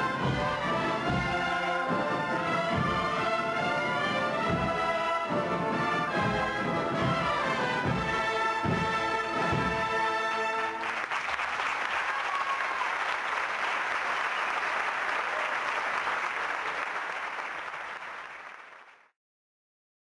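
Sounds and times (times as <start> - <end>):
brass band chord: 0.0 - 10.9
audience applauding: 10.0 - 19.1.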